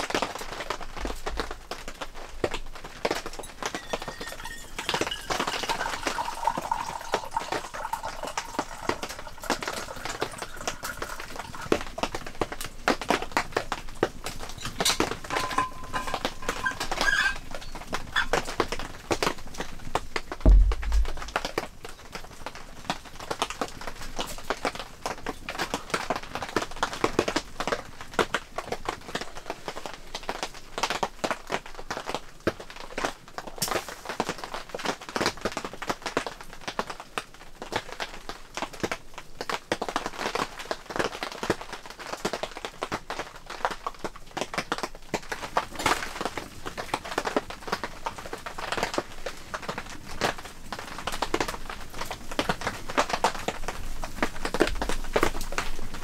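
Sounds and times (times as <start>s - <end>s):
wood fire crackling in a stove: 0.0s - 56.0s.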